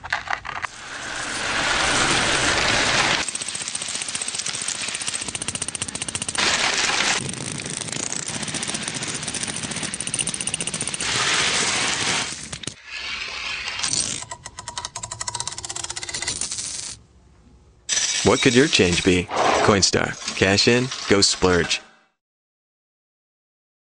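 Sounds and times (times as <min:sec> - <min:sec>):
metal coins clinking: 0:14.0 - 0:17.0, 0:17.9 - 0:19.1.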